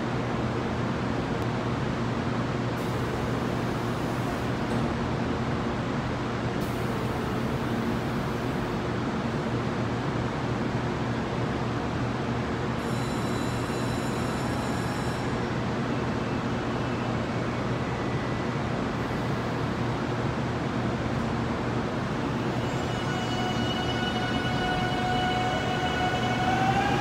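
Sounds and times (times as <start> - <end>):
electric train equipment hum: 12.6 - 27.0.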